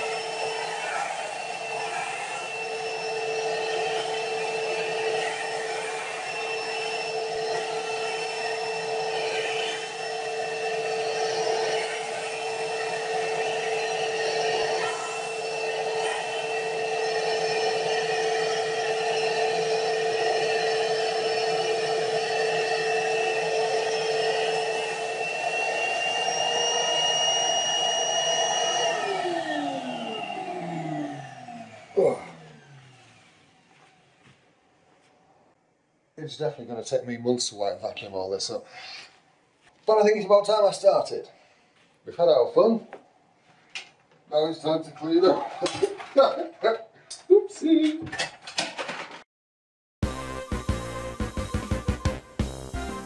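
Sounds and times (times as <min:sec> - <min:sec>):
vacuum cleaner sucking up beads: 0:00.0 - 0:34.2.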